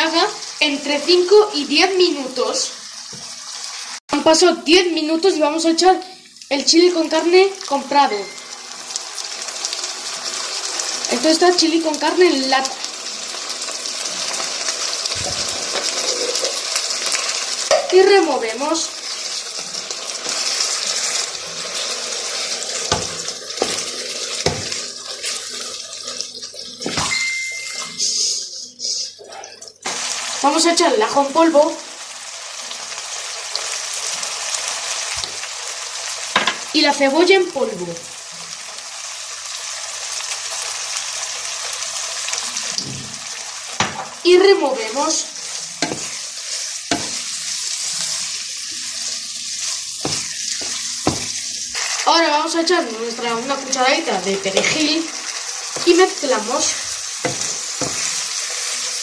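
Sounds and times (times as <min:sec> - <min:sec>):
food sizzling in frying pan: 0:00.0 - 0:59.0
high beep: 0:08.0 - 0:08.6, 0:27.0 - 0:28.0
wooden spatula knocking pan: 0:22.9 - 0:24.8, 0:43.8 - 0:44.1, 0:45.8 - 0:46.2, 0:46.9 - 0:47.2, 0:50.0 - 0:51.4, 0:57.2 - 0:58.3.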